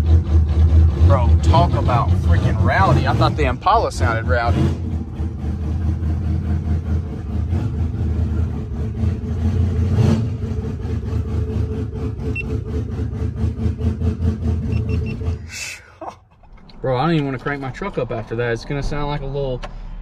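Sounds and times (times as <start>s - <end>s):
car engine idling with loud exhaust: 0.0s - 15.8s.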